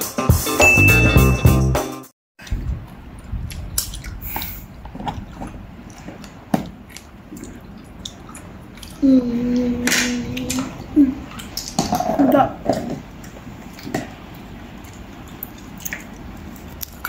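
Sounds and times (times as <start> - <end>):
people chewing and biting: 2.4 - 17.0
person humming: 9.0 - 11.2.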